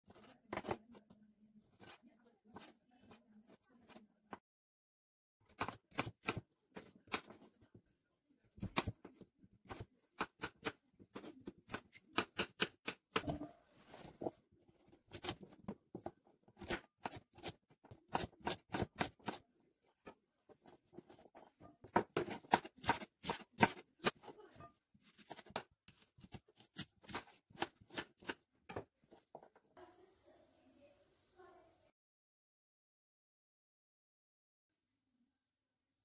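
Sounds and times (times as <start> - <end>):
knife chopping on wooden board: 9.7 - 13.4, 21.8 - 24.3.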